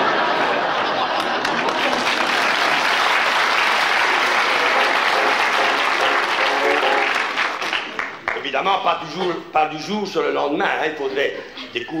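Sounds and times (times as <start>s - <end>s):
audience applauding: 0.4s - 8.5s.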